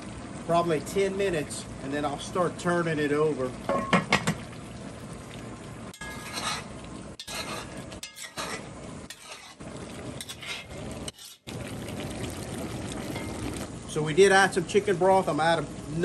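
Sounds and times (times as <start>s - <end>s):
pot sizzling: 0.0s - 16.0s
metal spoon scraping a pot: 6.0s - 9.6s, 10.2s - 11.5s.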